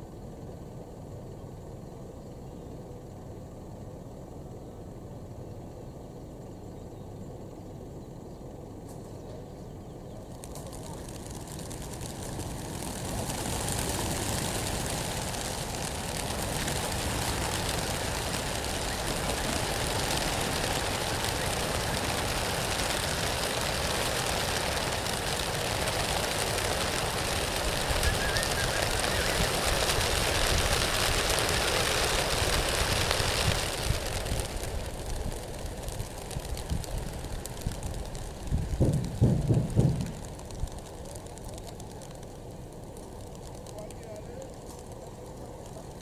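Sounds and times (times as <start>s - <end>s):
flock of pigeons wingbeats: 10.2s - 46.0s.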